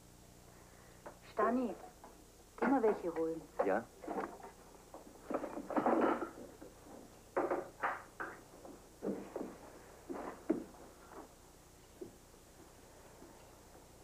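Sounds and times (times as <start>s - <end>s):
wooden knocks and clatters: 2.6s - 11.3s.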